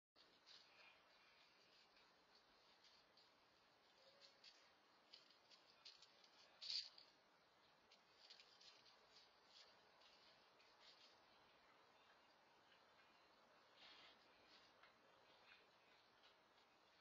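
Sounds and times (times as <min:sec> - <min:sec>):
light rustling: 0:00.2 - 0:07.2.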